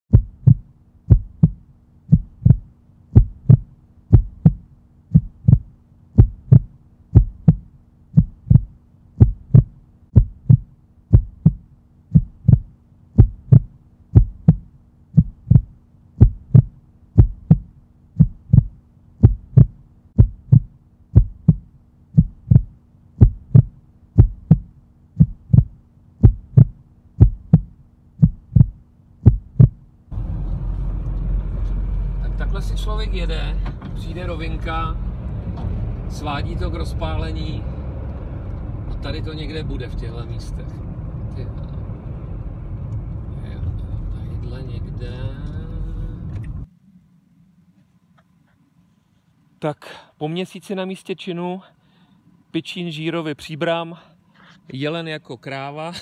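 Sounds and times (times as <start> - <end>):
heartbeat thumps: 0.1 - 29.9
faint low hum: 0.1 - 56.0.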